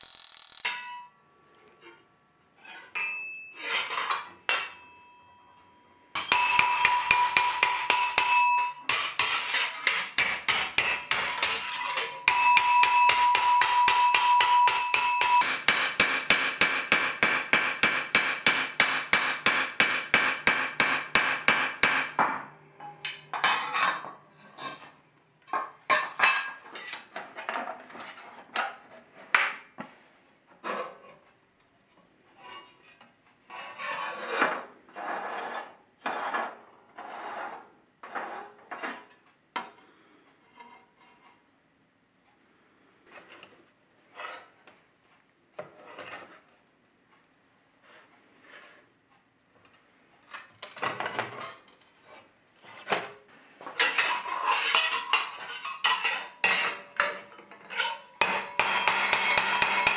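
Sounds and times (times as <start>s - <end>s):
hammer striking steel plate: 0.0s - 1.2s, 3.0s - 23.6s, 58.2s - 59.9s.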